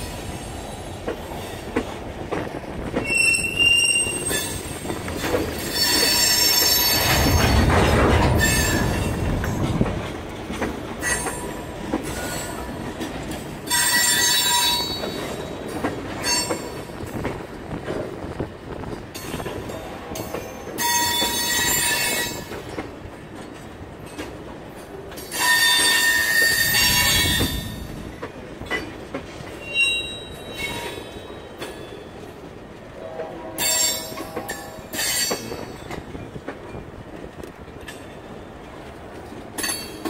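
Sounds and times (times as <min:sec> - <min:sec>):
train wheels rumbling on rails: 0:00.0 - 0:40.0
high-pitched wheel squeal: 0:03.0 - 0:04.6, 0:29.6 - 0:31.4.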